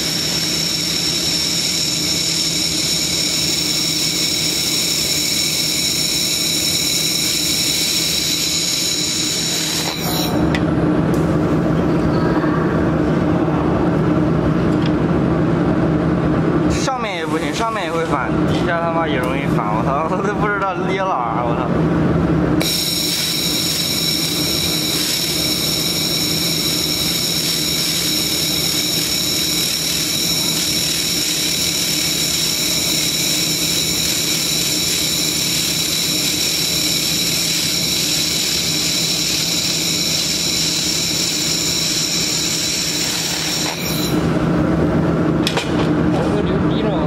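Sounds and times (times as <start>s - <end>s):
laser welding gun whine: 0.0s - 10.6s, 22.6s - 44.4s.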